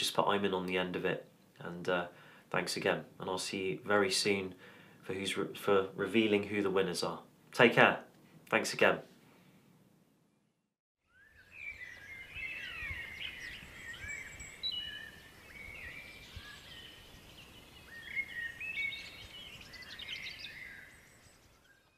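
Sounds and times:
faint outdoor hiss: 0.0 - 10.5, 11.1 - 21.9
birds chirping and singing: 11.0 - 21.9.

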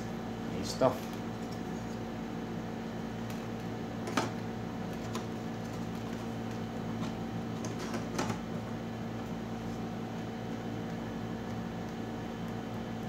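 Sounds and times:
machine hum: 0.0 - 13.0.

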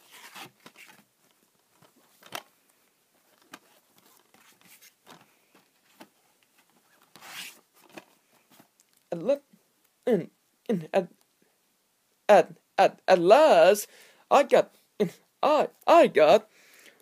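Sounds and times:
plastic case clicks and rustles: 1.7 - 2.5, 3.3 - 4.4.

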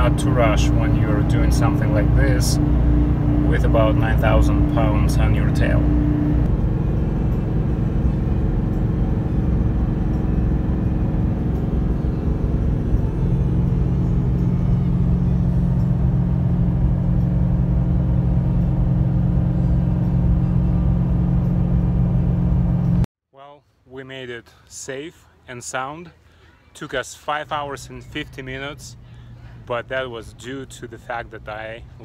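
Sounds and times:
truck engine under heavy load: 0.0 - 23.0
road rumble: 0.0 - 23.1, 26.1 - 32.0.

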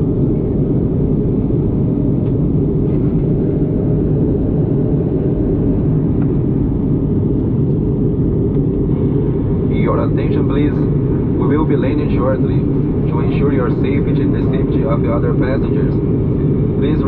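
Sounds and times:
jet engines and airflow rumble: 0.0 - 17.0.

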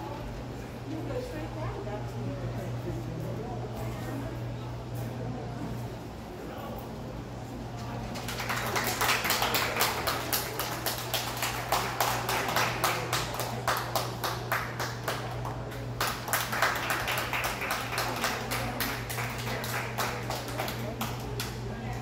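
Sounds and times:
fans humming: 0.0 - 22.0
people clapping: 7.8 - 22.0.

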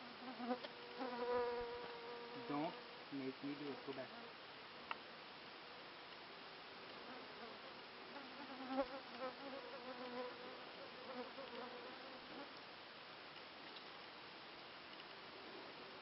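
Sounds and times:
flying insect buzzing: 0.0 - 2.9, 7.0 - 12.6.

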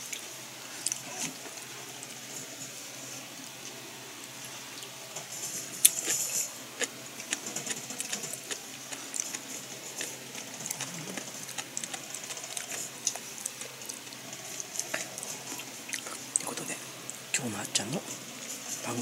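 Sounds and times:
person chewing crunchy food: 5.8 - 16.4.

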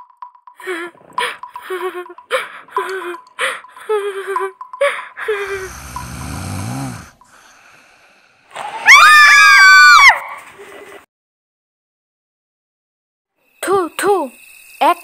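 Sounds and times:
woman snoring: 5.2 - 8.4
loud high cry: 8.8 - 10.4.

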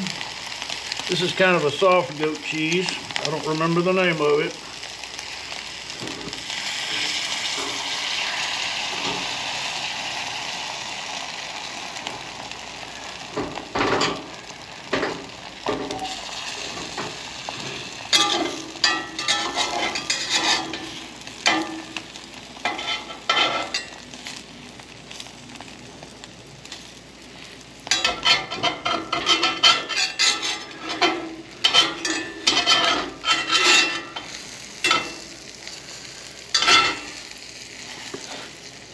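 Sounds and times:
eggs sizzling in a skillet: 0.0 - 38.9
metal spatula scraping a pan: 18.1 - 21.8, 22.6 - 23.9, 27.9 - 35.2, 36.5 - 37.2.

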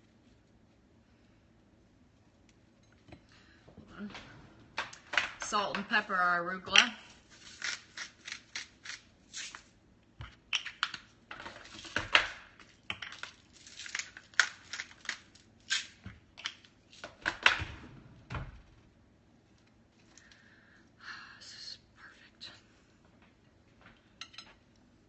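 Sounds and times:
salt and pepper grinders crunching: 7.3 - 9.7.

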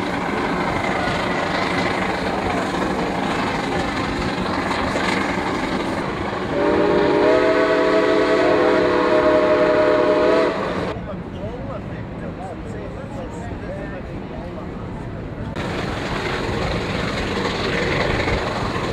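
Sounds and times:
train rumbling on track: 0.0 - 18.9
steam whistle blast: 6.5 - 10.9.

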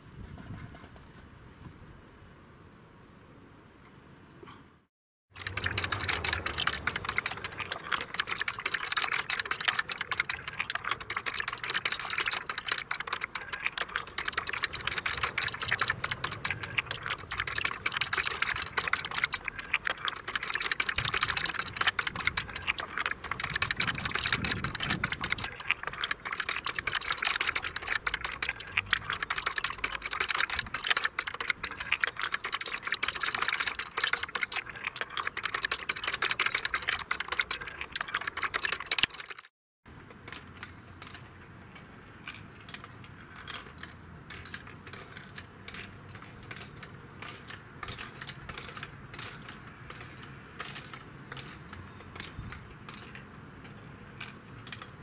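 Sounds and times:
wooden marble run clattering: 5.4 - 39.5.

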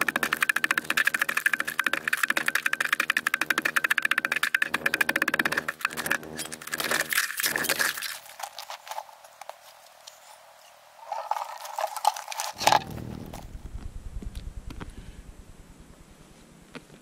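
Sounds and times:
ice chisel chopping ice: 0.0 - 8.2
ice and slush crunching: 6.4 - 9.2, 11.0 - 13.4.

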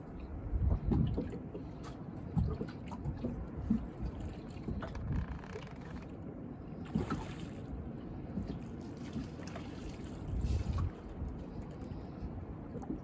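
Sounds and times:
water lapping against boat hull: 0.0 - 13.0
wind buffeting microphone: 0.1 - 1.3, 10.2 - 13.0.

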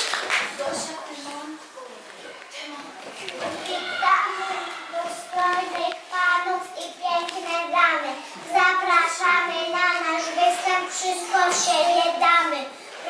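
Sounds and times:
children singing: 3.5 - 6.6, 7.6 - 12.6.

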